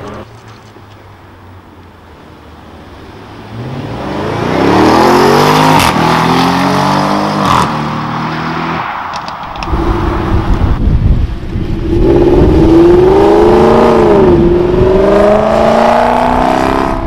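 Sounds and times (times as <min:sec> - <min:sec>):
car engine accelerating hard: 0:03.5 - 0:08.8, 0:11.8 - 0:17.0.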